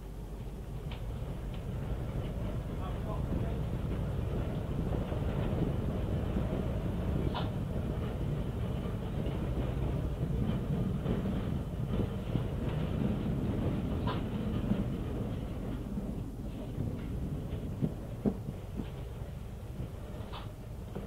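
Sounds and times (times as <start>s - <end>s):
tram rumbling on rails: 0.0s - 21.0s.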